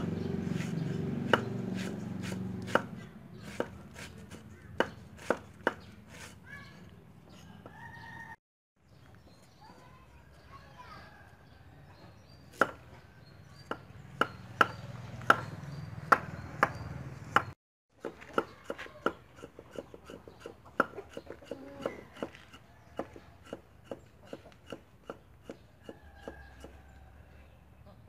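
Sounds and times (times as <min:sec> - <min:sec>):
cleaver chopping on wooden board: 0:00.0 - 0:06.4, 0:12.6 - 0:12.8, 0:13.6 - 0:26.8.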